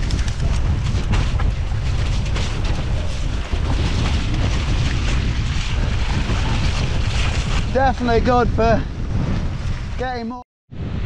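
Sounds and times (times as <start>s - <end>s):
bike knocks and rattles: 0.0s - 7.6s
wind buffeting microphone: 0.0s - 11.0s.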